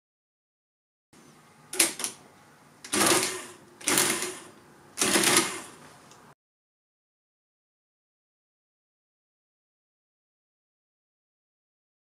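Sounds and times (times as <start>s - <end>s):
calculator gears whirring: 2.8s - 5.8s.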